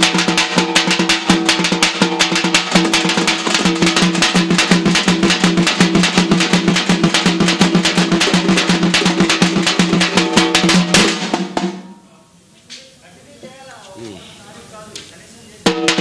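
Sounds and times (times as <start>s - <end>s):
fast steady drumming: 0.0s - 12.0s, 15.6s - 16.0s.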